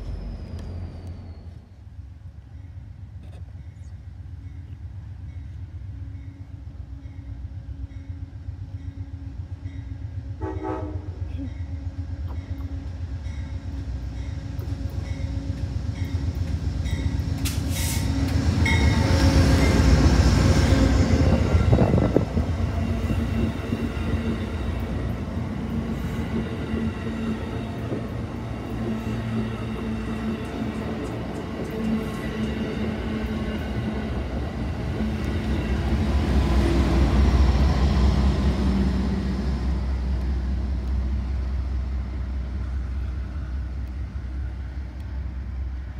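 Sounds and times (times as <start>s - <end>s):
diesel locomotive rumble: 0.0s - 45.9s
train horn blast: 10.3s - 11.4s.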